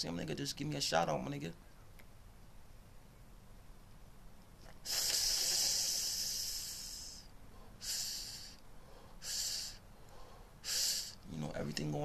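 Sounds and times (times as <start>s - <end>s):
man blowing out smoke: 4.6s - 11.2s.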